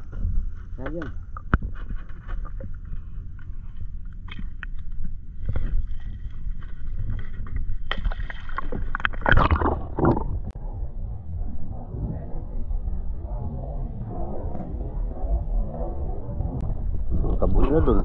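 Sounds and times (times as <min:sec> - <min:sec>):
water sloshing and splashing: 0:00.0 - 0:10.6
wind rumble on microphone: 0:00.0 - 0:18.0.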